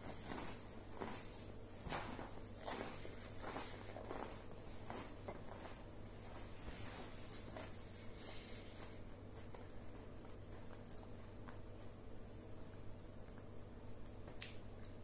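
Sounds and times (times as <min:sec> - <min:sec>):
soft rustles: 0:00.0 - 0:12.0
steady low hum: 0:00.0 - 0:15.0.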